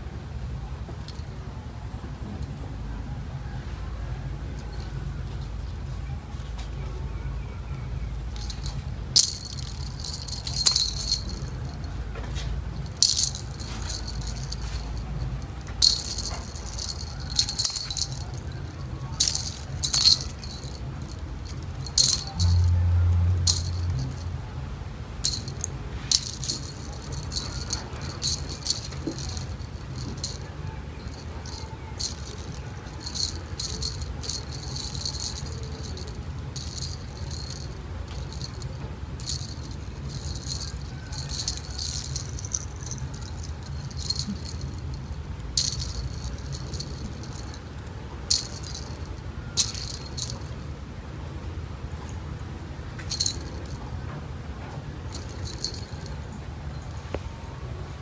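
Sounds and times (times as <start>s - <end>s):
low hum: 7.6s - 52.2s
jingle bells jingling: 8.2s - 50.7s, 53.0s - 54.0s, 55.0s - 56.9s.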